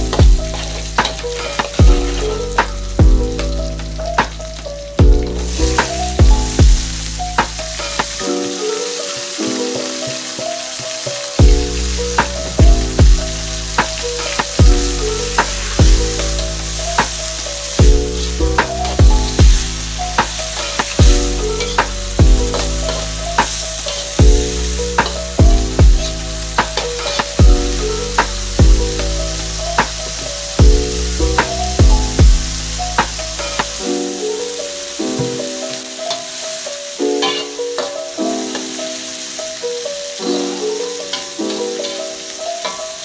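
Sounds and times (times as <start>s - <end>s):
background music: 0.0s - 43.0s
food sizzling in a wok: 0.0s - 43.0s
metal spatula scraping: 22.5s - 24.2s, 37.2s - 38.7s, 41.0s - 43.0s.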